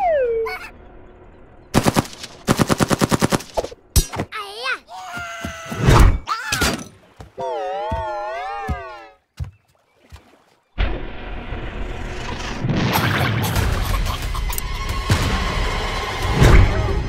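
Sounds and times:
rapid rifle fire: 1.8 - 3.6.

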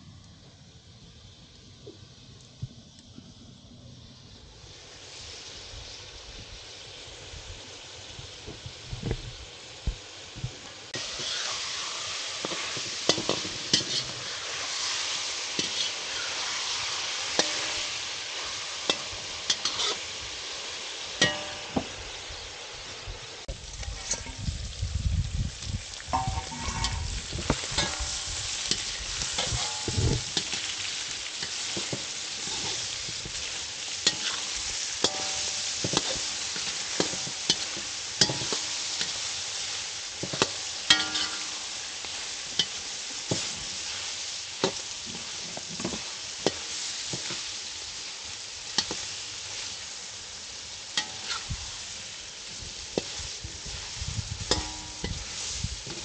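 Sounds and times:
food sizzling in a pan: 3.9 - 56.0
utensil scraping a pan: 11.0 - 11.6, 12.4 - 15.0, 15.6 - 16.5, 18.9 - 20.1, 26.2 - 30.7, 31.4 - 33.4, 34.0 - 39.2, 40.2 - 41.6, 51.0 - 51.6.

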